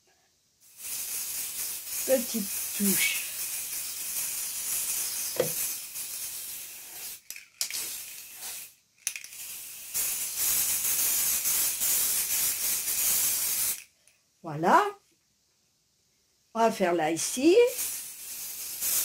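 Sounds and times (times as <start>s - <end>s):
spray paint can hissing: 0.6s - 13.9s, 17.7s - 19.0s.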